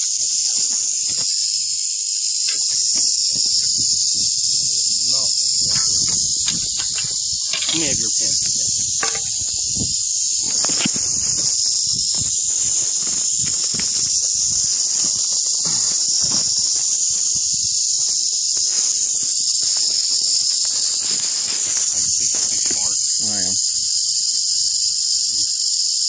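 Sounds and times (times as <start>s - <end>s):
rattlesnake rattling: 0.0s - 26.0s
faint rustles and knocks: 2.5s - 23.1s.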